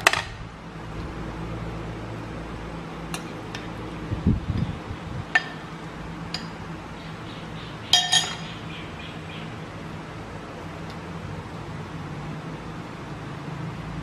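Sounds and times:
steady low hum: 0.0 - 14.0
spoon clinking on ceramic bowl: 7.9 - 8.5.

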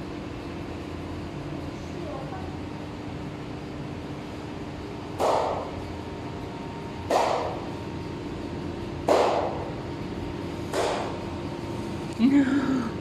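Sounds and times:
steady low hum: 0.0 - 13.0
underwater flipper slaps: 7.1 - 7.5.

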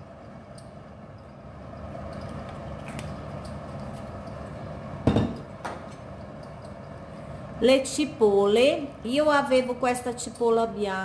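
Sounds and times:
low steady hum: 0.0 - 11.0
glass bottle knocking on counter: 5.0 - 5.4.

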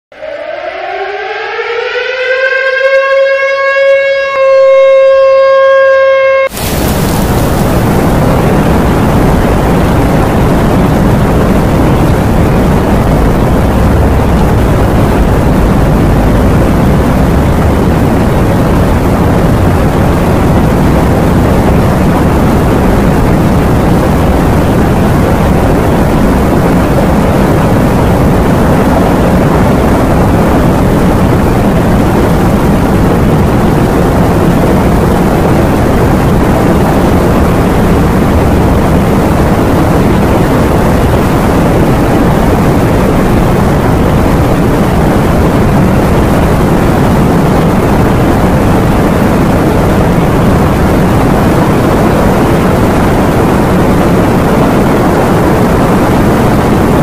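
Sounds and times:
siren wailing: 0.1 - 9.6, 12.6 - 21.9
heavy surf: 6.4 - 57.0
roar of wind: 6.4 - 57.0.

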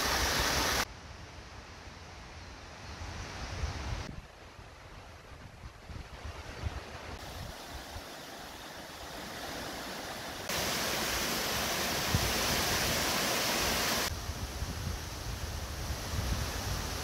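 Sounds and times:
flowing water rushing: 0.0 - 0.9, 7.1 - 17.0.

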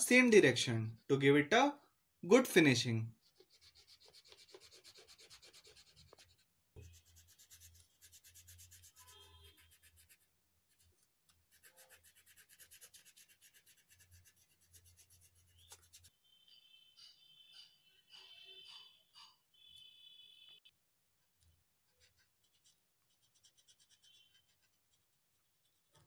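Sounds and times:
crayon rubbing on paper: 3.2 - 16.1, 21.8 - 26.0.

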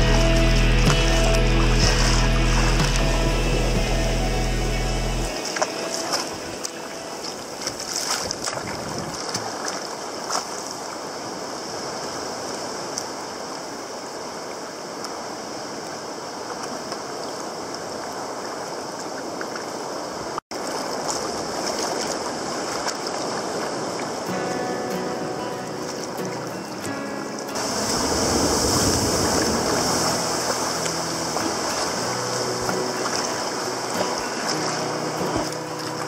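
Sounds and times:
water slapping hull: 0.0 - 4.2, 5.2 - 10.9, 20.5 - 24.4, 27.5 - 36.0
water sloshing against kayak hull: 5.3 - 11.0, 20.5 - 24.5, 27.4 - 36.0.

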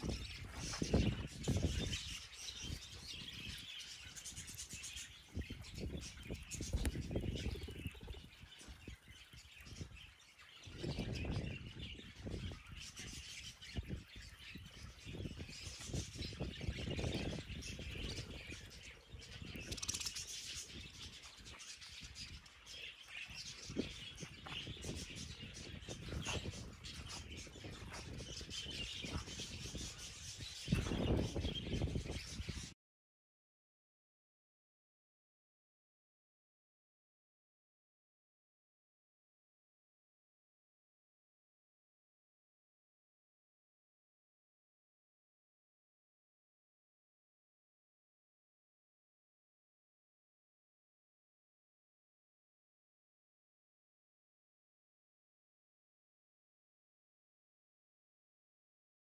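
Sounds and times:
small birds chirping: 0.0 - 32.8.

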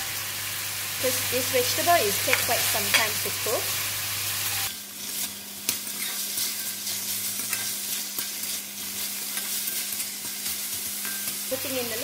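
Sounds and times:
food sizzling in a wok: 0.0 - 12.0
metal spatula scraping a wok: 4.5 - 11.5.

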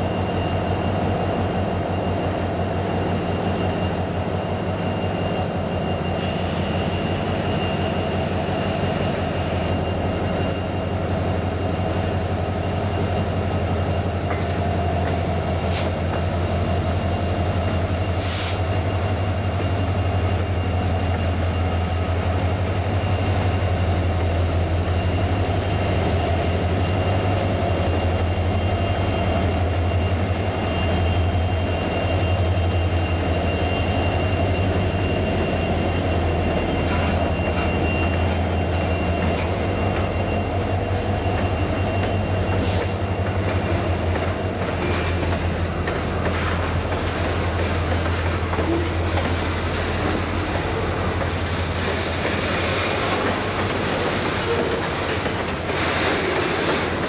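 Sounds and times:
diesel locomotive drone: 0.0 - 57.0
train wheel squeal: 0.0 - 57.0
train car clanks: 13.9 - 25.3, 34.4 - 57.0.

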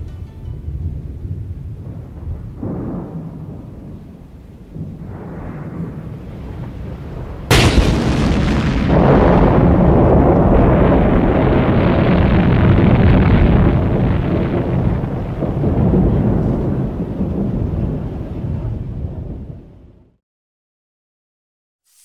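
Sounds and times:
cartoon explosion boom: 7.5 - 16.4
low heavy rumble: 7.5 - 20.2.

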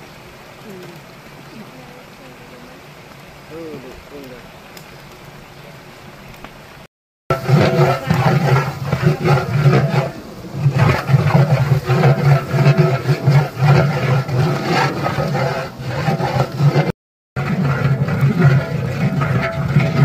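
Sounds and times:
onions frying in oil: 0.0 - 20.0
metal spatula scraping pot: 7.3 - 20.0.

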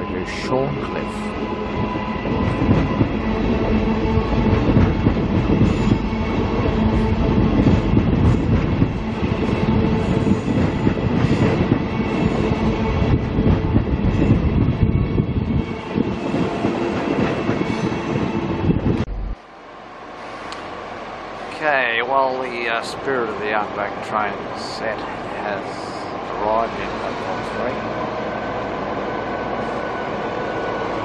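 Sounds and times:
electric train hum: 0.0 - 31.0
train wheels rolling over rails: 1.4 - 19.3.

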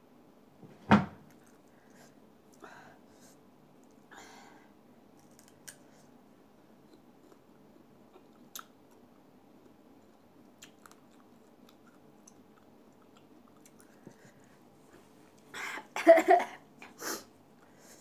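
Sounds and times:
faint chewing: 1.3 - 2.6, 5.2 - 6.1, 6.8 - 15.5.

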